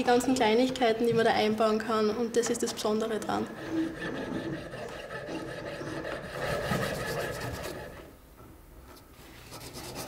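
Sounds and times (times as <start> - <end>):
piercing saw cutting metal: 3.5 - 8.1.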